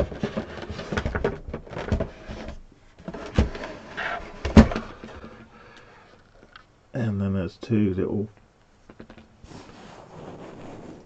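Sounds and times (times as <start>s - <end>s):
device scraping on desk: 9.4s - 11.0s.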